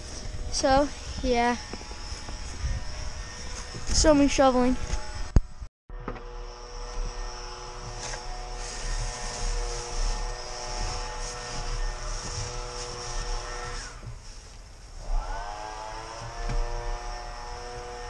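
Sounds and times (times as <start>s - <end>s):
steady droning hum: 6.2s - 18.0s
snow shovel scraping wooden boards: 7.7s - 14.5s.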